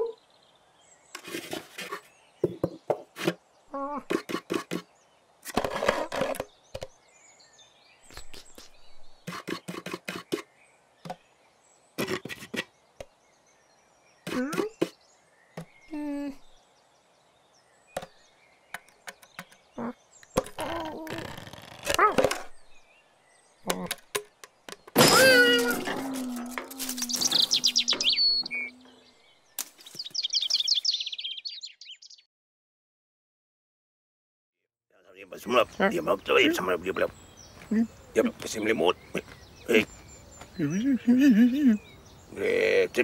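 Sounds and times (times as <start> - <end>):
knocks and scratches on wood: 1.2 - 3.4, 4.1 - 4.9, 9.2 - 11.2, 12.0 - 13.1.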